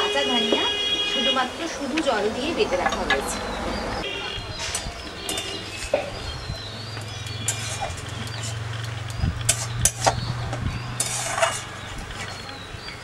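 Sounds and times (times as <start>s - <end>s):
metal spatula scraping paste in wok: 7.4s - 8.6s, 11.0s - 12.4s.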